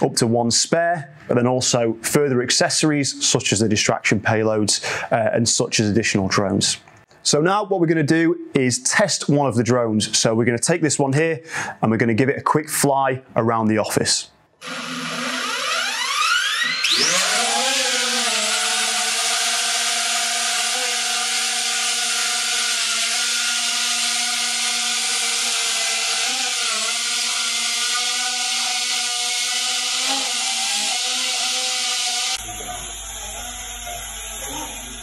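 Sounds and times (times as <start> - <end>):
drone motors buzzing: 14.6 - 35.0.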